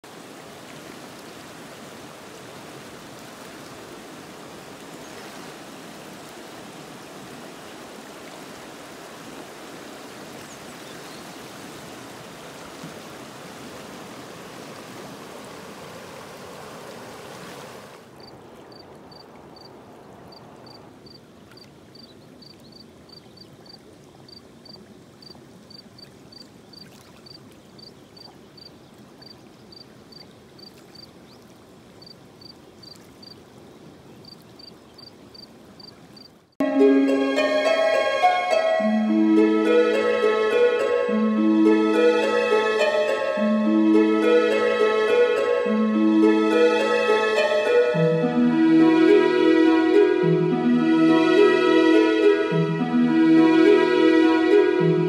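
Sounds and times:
insect chirping: 18.2s - 21.3s, 21.9s - 31.1s, 32.0s - 33.5s, 34.2s - 36.4s.

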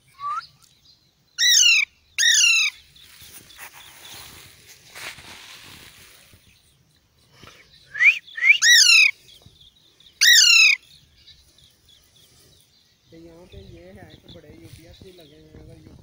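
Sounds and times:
parakeet harsh calls: 1.4s - 2.8s, 8.4s - 9.2s, 10.2s - 10.9s.

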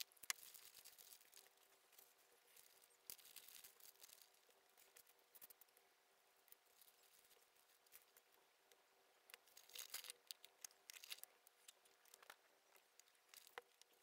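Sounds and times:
plastic bags crinkling: 0.0s - 5.5s, 9.5s - 12.4s
faint steady hum: 0.0s - 14.0s
small parts clicking on a mat: 9.3s - 14.0s.

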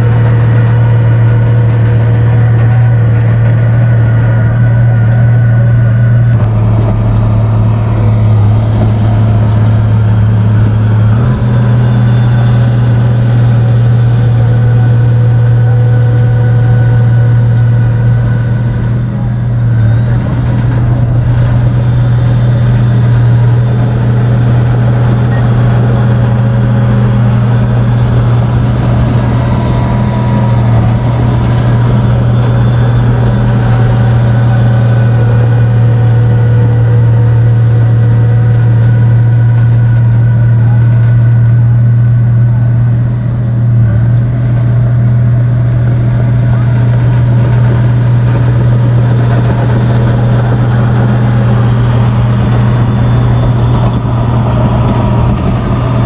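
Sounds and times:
bulldozer diesel engine droning: 0.0s - 56.0s.

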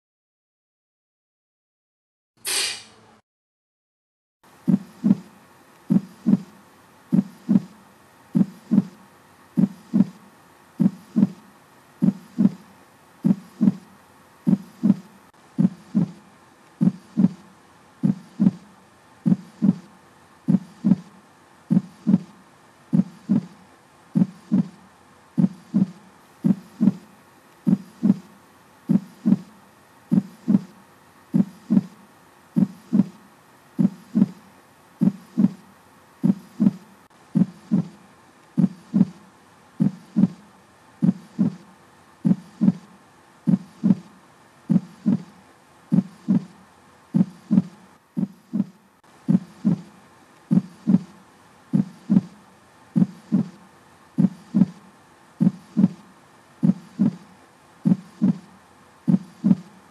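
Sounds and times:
faint hum: 4.5s - 59.9s
heartbeat thumping: 4.7s - 5.3s, 5.9s - 6.5s, 7.1s - 7.7s, 8.4s - 9.0s, 9.6s - 10.2s, 10.8s - 11.4s, 12.0s - 12.6s, 13.2s - 13.8s, 14.5s - 16.2s, 16.8s - 17.4s, 18.0s - 18.6s, 19.2s - 19.9s, 20.5s - 21.1s, 21.7s - 22.3s, 22.9s - 23.6s, 24.2s - 24.8s, 25.4s - 27.0s, 27.7s - 28.3s, 28.9s - 29.5s, 30.1s - 30.7s, 31.3s - 32.0s, 32.6s - 33.2s, 33.8s - 34.4s, 35.0s - 35.6s, 36.2s - 36.8s, 37.4s - 38.0s, 38.6s - 39.2s, 39.8s - 40.4s, 41.0s - 41.6s, 42.2s - 42.9s, 43.5s - 44.1s, 44.7s - 45.3s, 45.9s - 46.5s, 47.2s - 49.9s, 50.5s - 51.1s, 51.7s - 52.4s, 53.0s - 53.6s, 54.2s - 54.8s, 55.4s - 56.0s, 56.6s - 57.2s, 57.8s - 58.5s, 59.1s - 59.7s.

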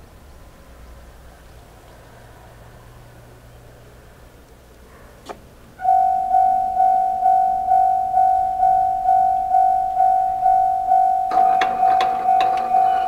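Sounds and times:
level crossing warning bell: 5.8s - 13.0s.

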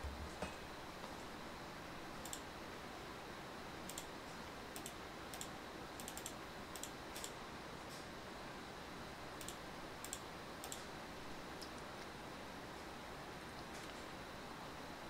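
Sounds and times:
computer keys clicking: 2.2s - 2.5s, 3.9s - 4.1s, 4.8s - 7.4s, 9.4s - 10.9s.

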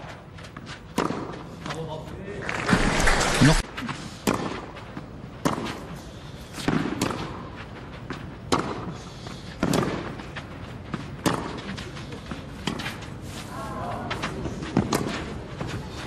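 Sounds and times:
tennis ball hits: 0.9s - 1.4s, 5.4s - 5.8s, 6.6s - 7.4s, 8.5s - 8.9s, 9.6s - 10.2s, 10.9s - 11.8s, 14.7s - 15.7s.

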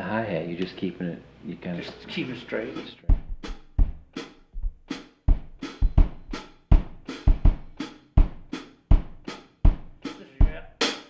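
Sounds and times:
bass drum thumps: 3.0s - 10.8s
hi-hat keeping time: 3.0s - 11.0s.

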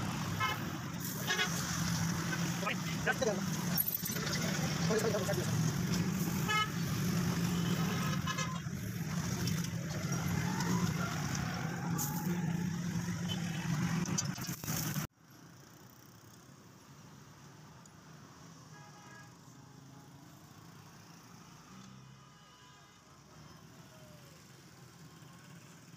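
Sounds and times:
vehicle horns: 0.3s - 1.8s, 6.2s - 8.8s, 18.7s - 19.4s.

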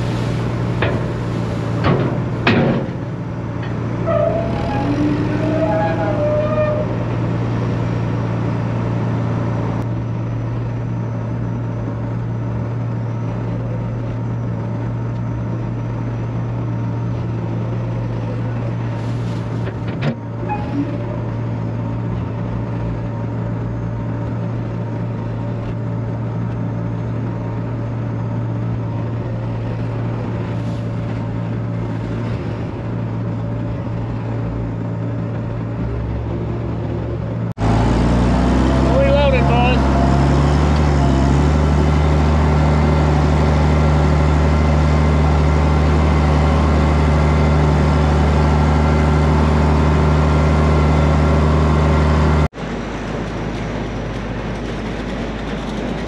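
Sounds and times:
farm machinery engines droning: 0.0s - 56.0s.

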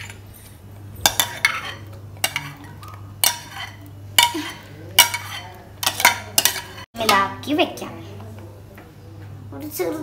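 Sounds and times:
glass bowl clinking on metal pan: 1.0s - 7.2s.

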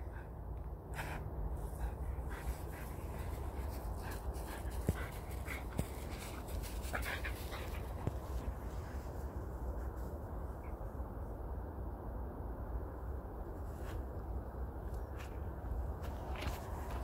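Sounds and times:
steady low rumble: 0.0s - 17.0s
dog panting and sniffing: 0.1s - 9.1s.

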